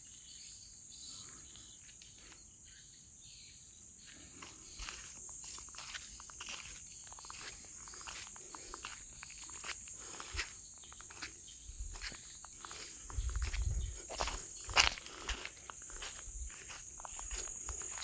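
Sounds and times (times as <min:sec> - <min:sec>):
insects droning: 0:00.0 - 0:18.0
footsteps through vegetation: 0:04.3 - 0:18.0.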